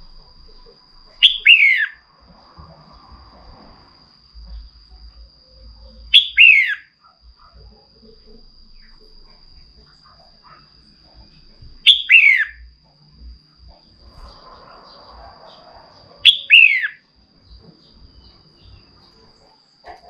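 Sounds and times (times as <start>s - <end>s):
bird calling: 1.1s - 2.0s, 6.1s - 6.9s, 11.8s - 12.7s, 14.2s - 17.0s.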